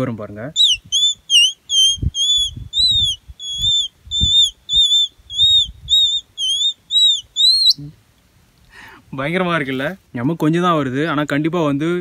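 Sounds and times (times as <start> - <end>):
palm leaf whistle chirps: 0.5 - 7.9.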